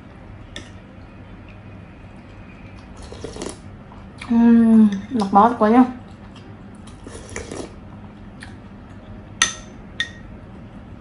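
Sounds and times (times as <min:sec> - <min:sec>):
soft eating noises: 0:00.0 - 0:11.0
metal spoon clinking on dish: 0:09.4 - 0:10.3.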